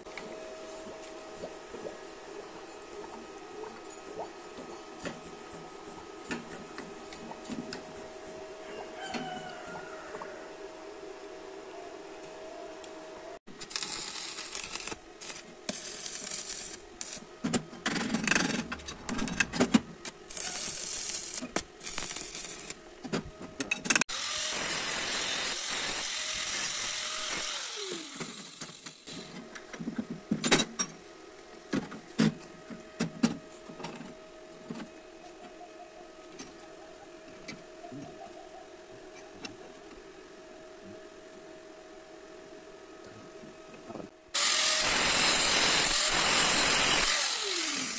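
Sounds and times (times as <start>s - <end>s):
angle grinder cutting steel: 24.1s - 28.9s, 44.4s - 47.9s
air compressor running: 44.4s - 47.9s.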